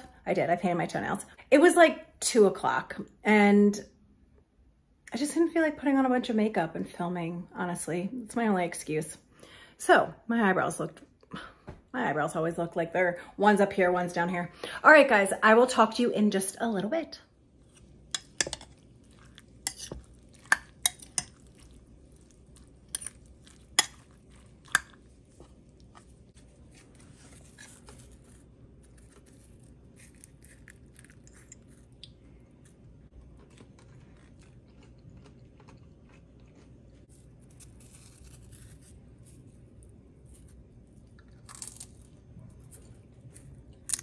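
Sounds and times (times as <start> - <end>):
chip scraping through salsa: 18.7 - 31.8, 37.1 - 40.6.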